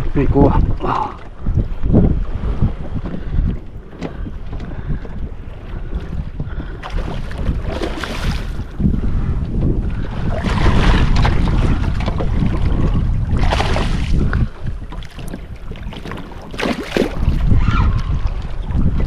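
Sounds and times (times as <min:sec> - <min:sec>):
wind rumbling on microphone: 0:00.0 - 0:19.0
fish splashing in water: 0:13.3 - 0:14.2, 0:16.0 - 0:17.5.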